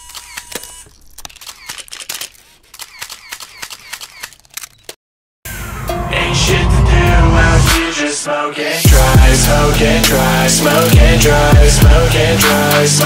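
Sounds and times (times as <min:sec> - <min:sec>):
camera shutter clicks: 0:00.0 - 0:05.0.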